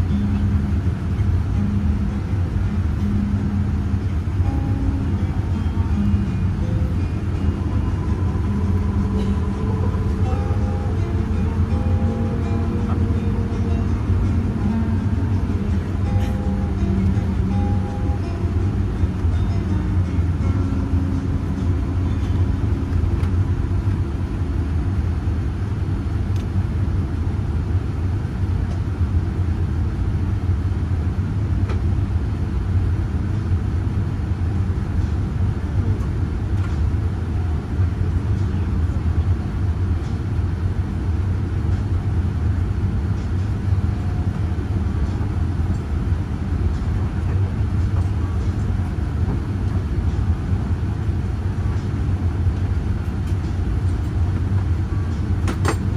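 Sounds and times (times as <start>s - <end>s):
airplane cabin engine rumble: 0.0s - 55.9s.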